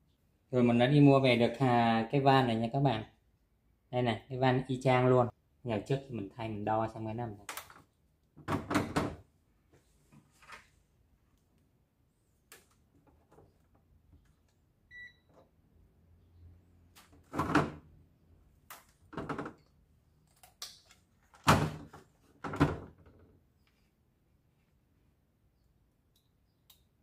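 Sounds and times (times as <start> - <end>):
short electronic beep: 14.9 - 15.3
knocks and rattles of handling parts: 18.8 - 23.5.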